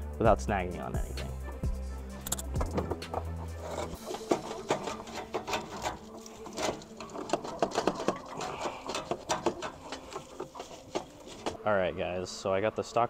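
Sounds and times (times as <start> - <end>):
metal clinks and scrapes: 2.3 - 11.7.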